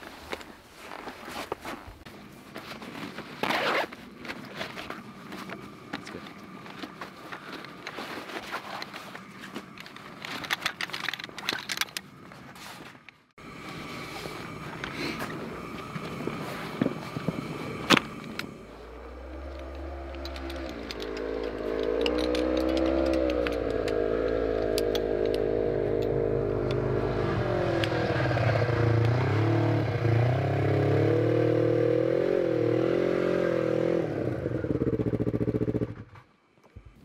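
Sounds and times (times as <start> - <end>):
snowmobile engine revving: 13.6 - 36.0.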